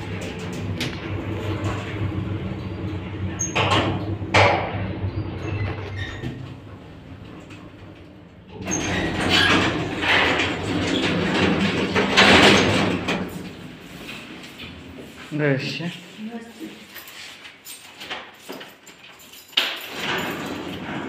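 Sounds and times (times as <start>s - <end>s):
elevator doors sliding open: 0.0s - 15.0s, 19.8s - 21.0s
elevator hum: 0.0s - 15.0s.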